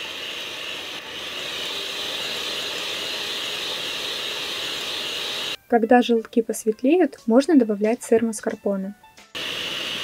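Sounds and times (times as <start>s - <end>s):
electric hand mixer whisking: 0.0s - 5.6s, 9.4s - 10.0s.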